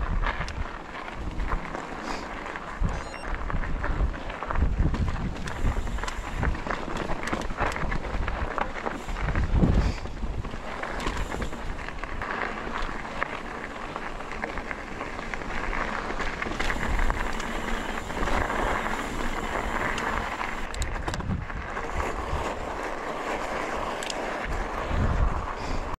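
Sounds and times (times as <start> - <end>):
wind noise on microphone: 0.0 - 13.0, 15.4 - 26.0
bike rattling: 0.0 - 26.0
bike tyres crunching on gravel: 0.0 - 26.0
sharp clicks: 19.8 - 21.2.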